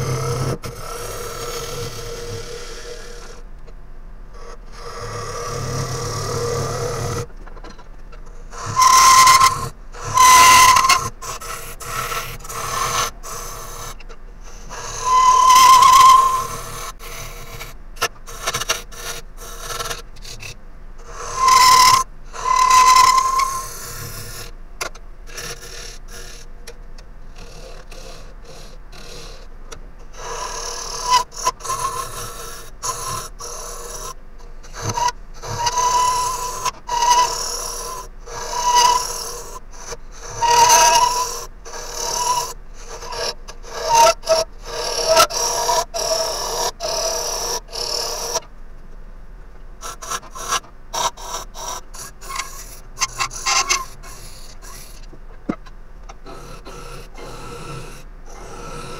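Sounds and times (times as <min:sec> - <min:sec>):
lathe tool cutting wood: 0:08.6 - 0:11.8, 0:14.7 - 0:16.5, 0:21.3 - 0:23.7, 0:34.8 - 0:39.0.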